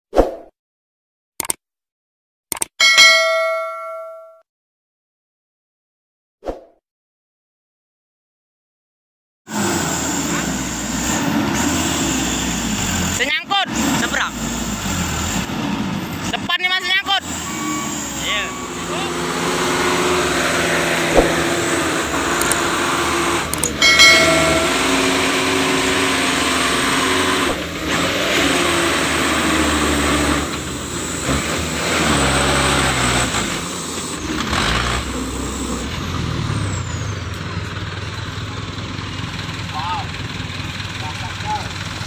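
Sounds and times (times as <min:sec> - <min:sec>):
truck diesel engine revving: 0:09.5 - 0:42.0
loud squeal: 0:17.2 - 0:22.3, 0:23.0 - 0:27.6.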